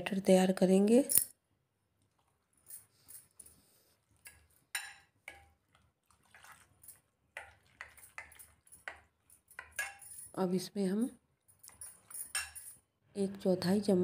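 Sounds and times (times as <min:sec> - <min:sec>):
spoon stirring batter in glass bowl: 0:02.0 - 0:10.4, 0:11.4 - 0:12.9.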